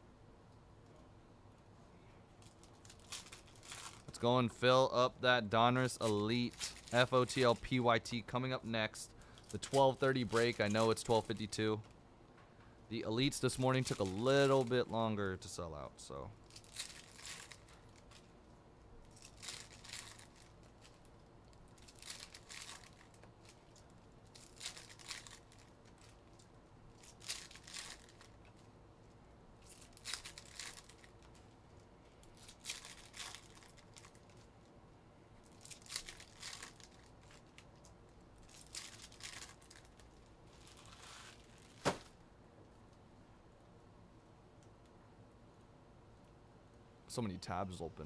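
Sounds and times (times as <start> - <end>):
card pack wrappers tearing: 5.8 - 8.2, 9.3 - 11.8, 13.2 - 14.8, 16.5 - 18.2, 19.1 - 21.0, 21.8 - 23.6, 24.3 - 26.1, 27.0 - 28.4, 29.6 - 31.4, 32.3 - 34.5, 35.5 - 37.7, 38.4 - 42.1.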